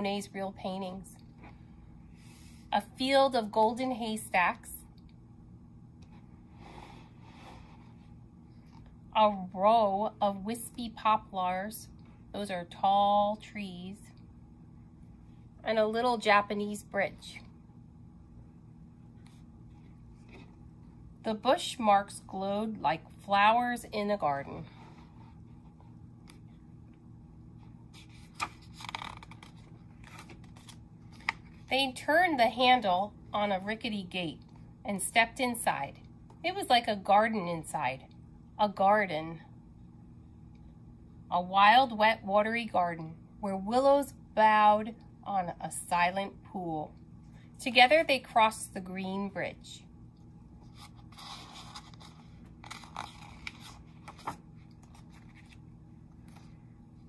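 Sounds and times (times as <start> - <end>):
faint steady hum: 0.0 - 57.0
paper page turning: 27.9 - 31.7, 50.6 - 56.6.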